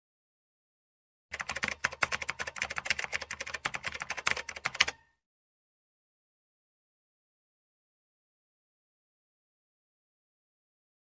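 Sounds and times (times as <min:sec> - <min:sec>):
keyboard keystroke clicks: 0:01.4 - 0:05.1.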